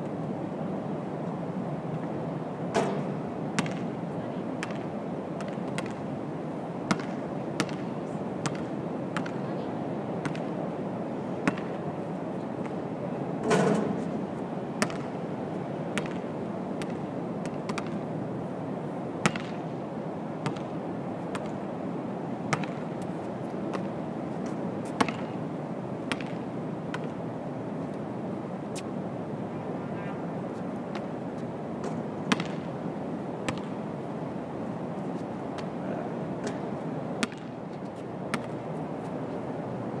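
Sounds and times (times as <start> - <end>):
outdoor background noise: 0.0 - 40.0
basketball bouncing on court: 3.6 - 3.9, 4.6 - 6.0, 6.9 - 7.8, 8.4 - 9.4, 10.2 - 10.5, 11.4 - 11.8, 14.8 - 15.1, 16.0 - 16.2, 16.8 - 18.0, 19.2 - 19.6, 20.4 - 20.7, 22.5 - 22.8, 25.0 - 25.4, 26.1 - 27.1, 32.3 - 32.7, 33.5 - 33.8, 37.2 - 37.5, 38.3 - 38.6.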